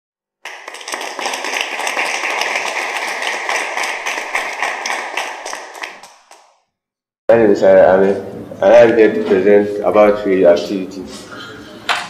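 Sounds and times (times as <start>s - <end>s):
crowd applauding: 0.4s - 6.5s.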